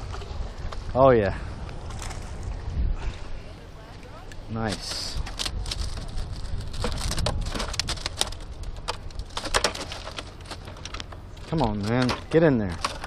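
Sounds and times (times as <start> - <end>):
fish thrashing in a plastic bag: 5.1 - 11.0.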